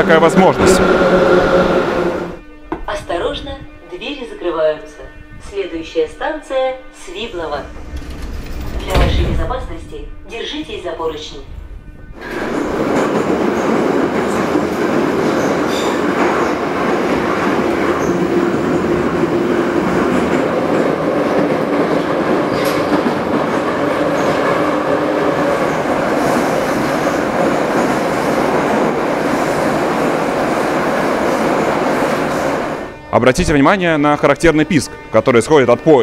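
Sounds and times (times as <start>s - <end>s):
metro train wheels rumbling: 0.0s - 2.6s, 7.2s - 33.1s.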